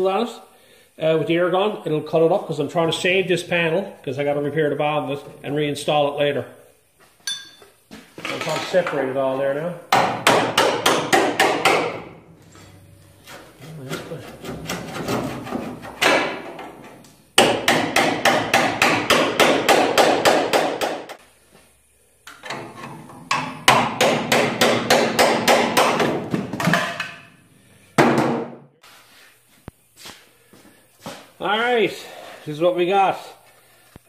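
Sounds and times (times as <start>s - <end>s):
hammer striking chisel on steel: 9.9s - 12.0s.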